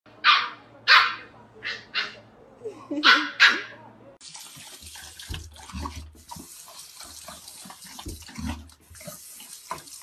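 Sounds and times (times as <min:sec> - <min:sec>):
dog lapping water: 0:04.2 - 0:10.0.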